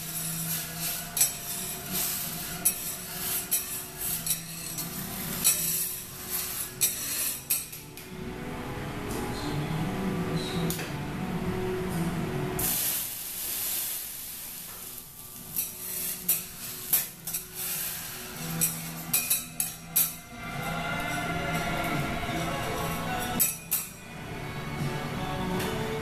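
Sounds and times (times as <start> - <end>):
food sizzling on a griddle: 0.0 - 7.8, 12.6 - 20.2
spatulas clinking on metal griddle: 0.0 - 7.9, 14.7 - 21.9, 22.7 - 24.0.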